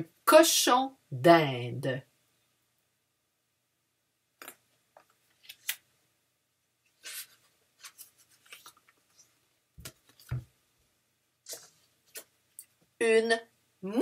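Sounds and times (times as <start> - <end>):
cards clicking and rustling: 4.4 - 5.8, 7.0 - 9.2
soft thumps of cards: 9.8 - 10.5.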